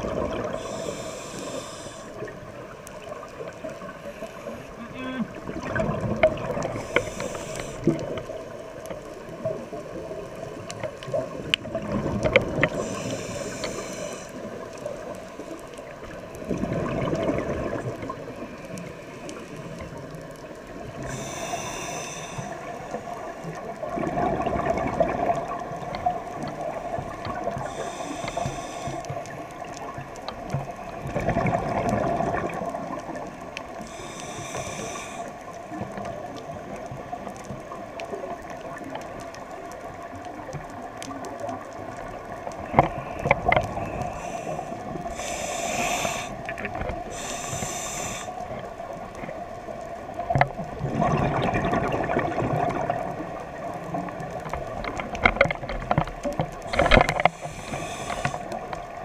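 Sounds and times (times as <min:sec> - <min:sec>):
exhaled bubbles gurgling: 0:00.0 - 0:59.0
faint crackling clicks: 0:00.0 - 0:59.0
regulator inhale hiss: 0:00.4 - 0:02.4, 0:03.9 - 0:05.2, 0:06.6 - 0:08.4, 0:12.6 - 0:15.9, 0:20.9 - 0:23.6, 0:26.6 - 0:30.0, 0:33.1 - 0:35.8, 0:42.6 - 0:49.3, 0:56.6 - 0:59.0.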